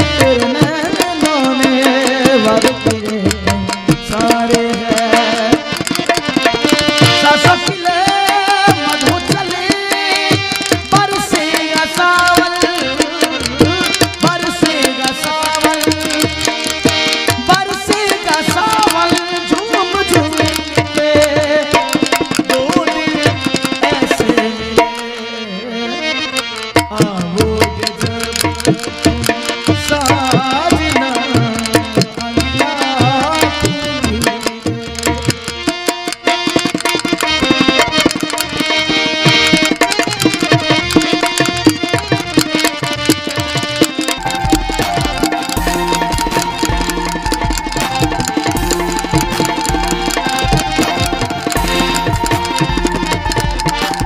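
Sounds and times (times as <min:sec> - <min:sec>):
hand-drum strokes: 0:00.0 - 0:25.2, 0:26.6 - 0:54.0
melodic instrumental line: 0:00.0 - 0:54.0
held melodic instrument tones: 0:29.0 - 0:54.0.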